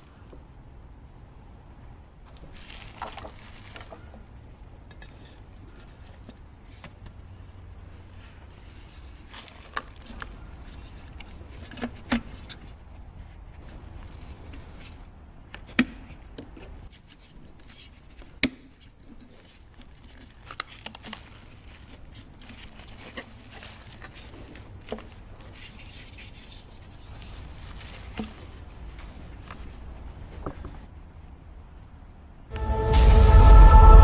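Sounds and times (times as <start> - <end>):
low hum: 32.4 - 34.0.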